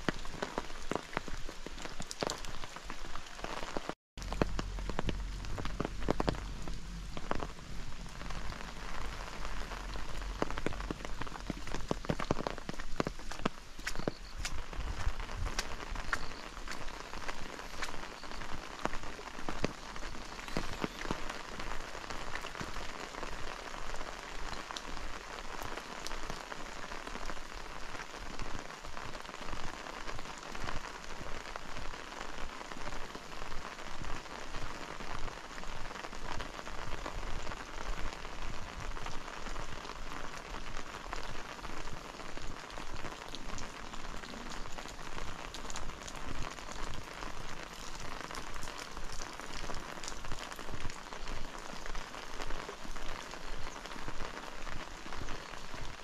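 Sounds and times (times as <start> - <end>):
steady rain falling: 0.0 - 56.0
walking footsteps: 10.0 - 18.1.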